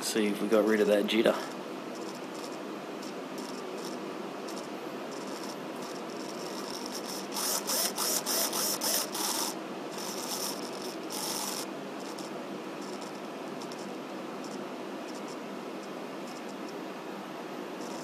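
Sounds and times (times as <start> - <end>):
servo motor whirring: 2.0 - 13.9.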